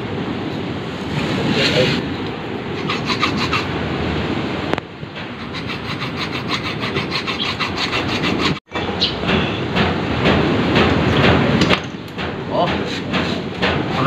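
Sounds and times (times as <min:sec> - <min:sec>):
hacksaw cutting metal rod: 0:02.8 - 0:03.7, 0:05.3 - 0:08.6.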